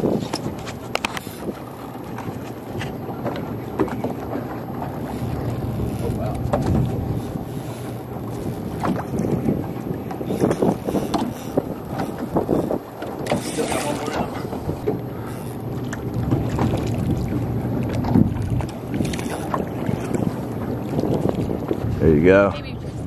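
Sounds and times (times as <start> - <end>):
wind buffeting the microphone: 0.0 - 23.0
sharp clicks and knocks: 0.2 - 17.2.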